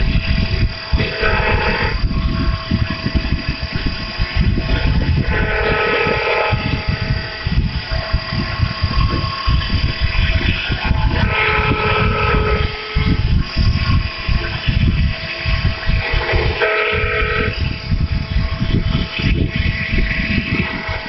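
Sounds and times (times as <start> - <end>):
high whine: 0.0 - 21.0
machine motor running: 0.0 - 21.0.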